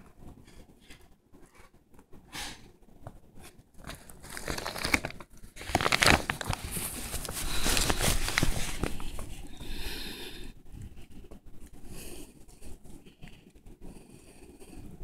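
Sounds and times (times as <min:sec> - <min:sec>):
plastic sheet crinkling: 0:03.7 - 0:09.6.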